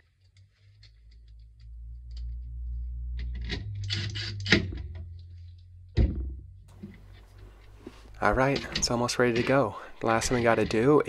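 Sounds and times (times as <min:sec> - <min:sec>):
low rumble: 0:00.8 - 0:08.3
metal tray scraping and rattling: 0:06.8 - 0:11.0.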